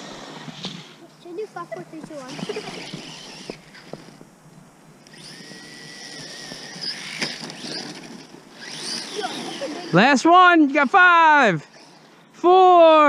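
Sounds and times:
electric motor whining: 2.2s - 4.2s, 5.0s - 12.1s.

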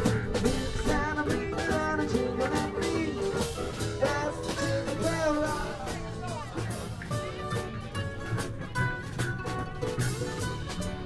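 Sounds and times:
acoustic guitars strumming: 0.0s - 11.0s
people singing: 0.4s - 6.4s.

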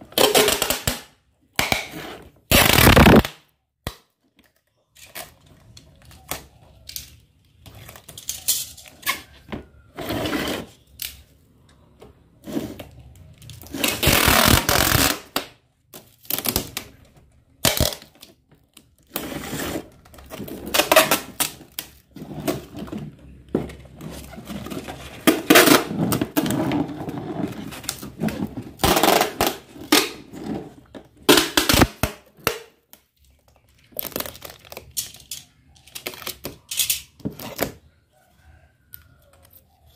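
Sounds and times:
packing tape pulled off roll: 1.6s - 3.4s, 13.5s - 15.5s.

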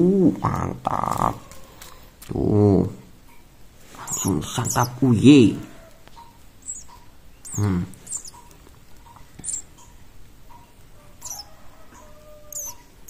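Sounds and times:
nestling chirping: 3.8s - 13.0s.

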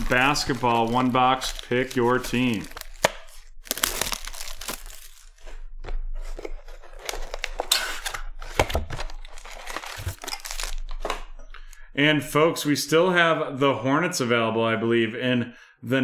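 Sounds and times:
foil card pack crinkling: 0.0s - 5.4s, 6.9s - 11.1s
packaging tearing and crinkling: 0.0s - 5.4s, 6.3s - 11.2s.

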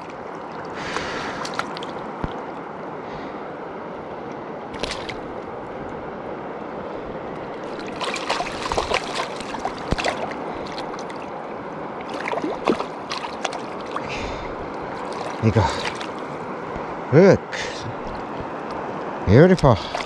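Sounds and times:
short splashes and clicks: 0.0s - 2.6s, 4.7s - 5.4s, 7.6s - 11.3s, 12.0s - 14.2s, 14.8s - 16.9s, 18.0s - 20.0s
river water flowing over rocks: 0.0s - 20.0s.

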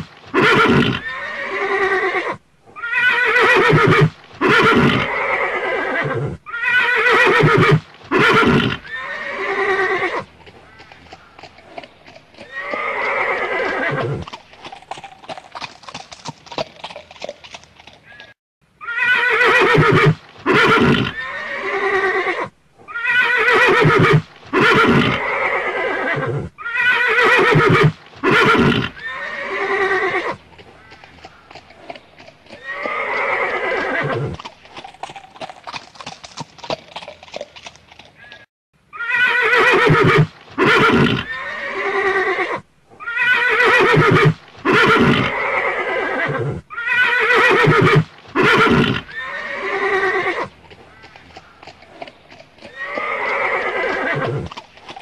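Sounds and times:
horse whinnying: 0.0s - 11.0s, 12.4s - 14.3s, 18.0s - 31.1s, 32.5s - 34.5s, 38.2s - 51.8s, 52.6s - 55.0s.

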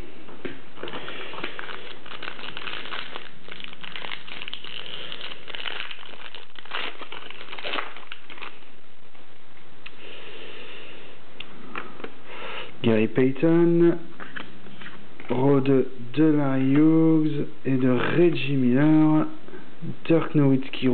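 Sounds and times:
foil wrapper crinkling: 0.8s - 9.1s.

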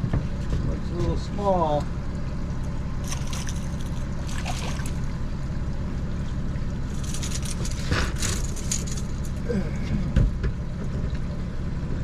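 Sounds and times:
outboard motor running: 0.0s - 12.0s
fish splashing at the surface: 3.0s - 5.2s.

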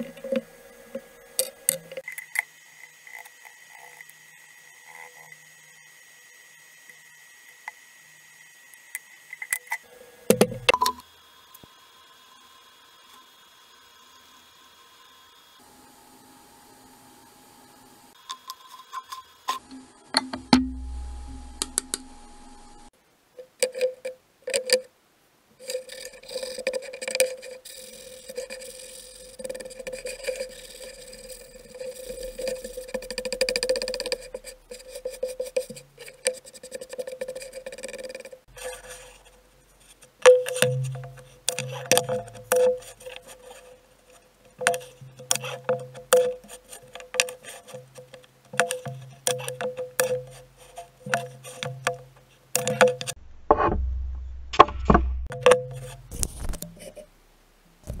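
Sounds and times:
low sustained bass: 20.5s - 22.9s, 53.2s - 56.1s.

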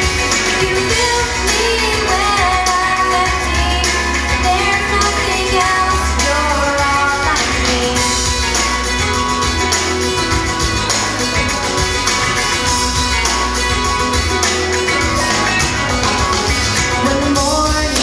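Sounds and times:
pop backing track with bass: 0.0s - 18.0s
girl singing: 0.6s - 8.2s, 17.0s - 18.0s.

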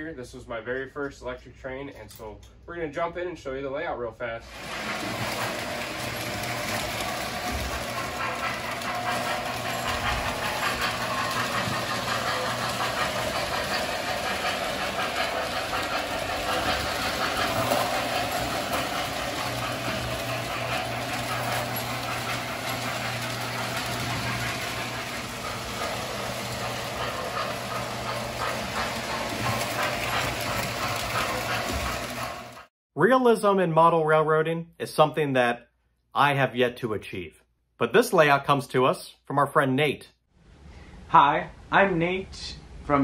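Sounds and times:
model train motors whirring: 4.5s - 32.7s
wheels rattling over rails: 4.5s - 32.7s.

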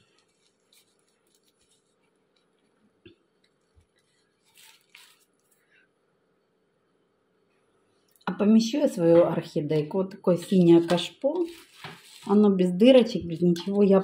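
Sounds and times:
plastic plant pot taps and rustles: 10.8s - 12.4s.

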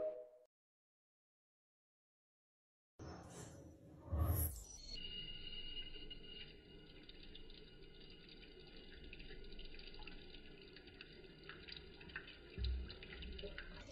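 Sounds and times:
faucet water splashing into sink: 5.8s - 13.9s.

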